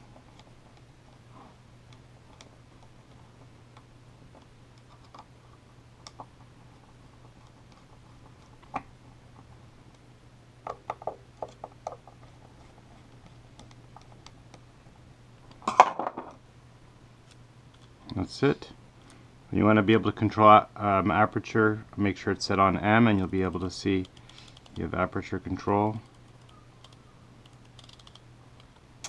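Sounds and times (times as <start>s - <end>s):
parts clattering on table: 15.6s - 16.4s.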